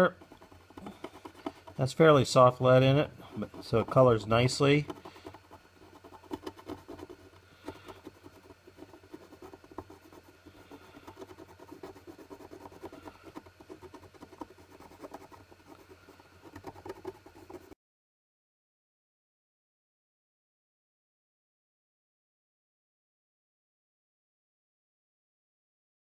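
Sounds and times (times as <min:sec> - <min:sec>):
pencil scratching on wood: 0:00.0 - 0:17.8.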